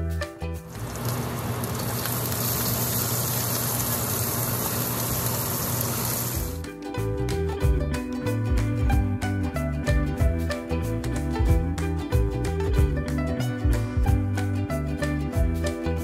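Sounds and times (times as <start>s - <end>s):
plucked-string background music: 0.0s - 1.5s, 6.4s - 16.0s
onions sizzling in a wok: 0.7s - 6.6s.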